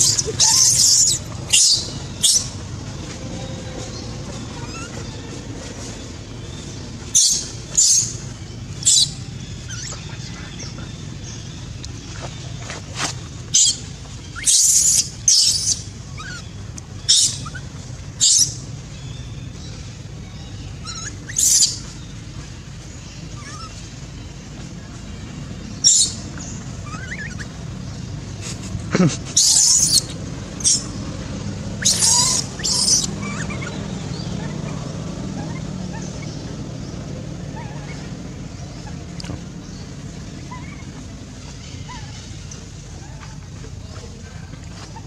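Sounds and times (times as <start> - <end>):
baby monkey screaming: 0.0 - 2.6, 3.3 - 5.3, 7.1 - 10.3, 13.5 - 18.6, 20.8 - 22.0, 23.3 - 23.8, 25.8 - 27.7, 29.3 - 31.0, 31.7 - 36.5, 37.4 - 43.4
monkey shrieking: 0.0 - 2.6, 4.4 - 5.2, 14.4 - 16.5, 23.4 - 23.8, 26.8 - 27.5, 29.3 - 30.9, 31.8 - 36.4, 37.5 - 38.1, 40.4 - 41.0
faint squeaks: 0.0 - 6.4, 31.8 - 36.3
steady low hum: 0.0 - 45.0.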